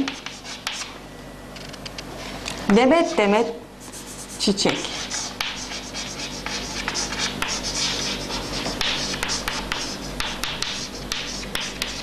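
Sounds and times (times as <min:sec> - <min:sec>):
chalk scratching on chalkboard: 0:00.0 - 0:00.9, 0:03.0 - 0:12.0
chalk tapping board: 0:00.0 - 0:00.9, 0:03.8 - 0:12.0.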